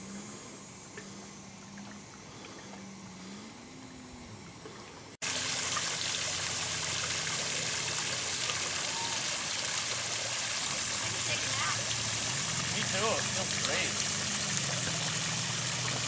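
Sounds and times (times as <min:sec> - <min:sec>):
faint low hum: 0:00.0 - 0:05.2
fountain spray splashing on water: 0:05.2 - 0:16.0.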